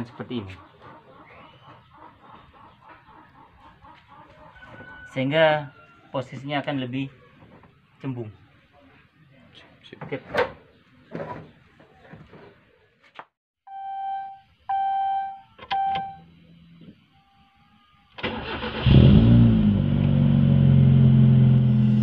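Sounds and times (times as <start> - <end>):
short electronic beeps: 13.7 - 16.2
car engine cranking and idling: 18.2 - 22.0.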